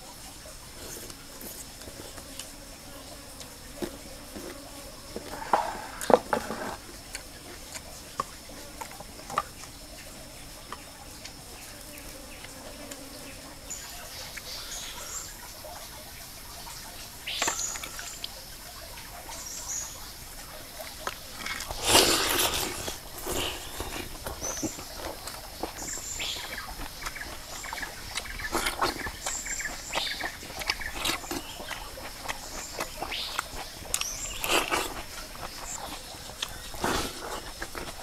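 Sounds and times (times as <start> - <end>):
high insect drone: 0.0 - 38.0
crunchy chewing: 0.7 - 15.3, 17.3 - 18.4, 19.9 - 38.0
loud wet bite into fish: 21.0 - 29.4.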